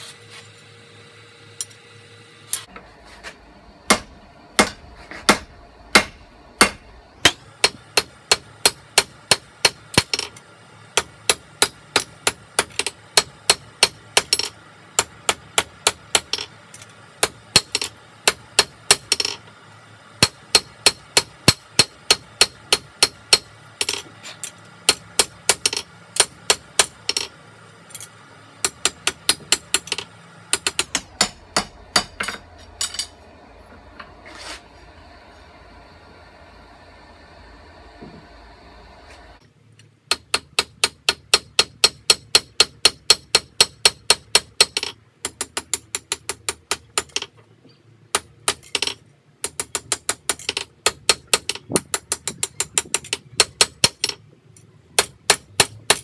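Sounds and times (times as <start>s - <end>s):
hammer striking steel on anvil: 3.9s - 10.4s, 17.2s - 19.4s, 20.2s - 24.1s, 24.8s - 27.3s, 28.0s - 33.2s.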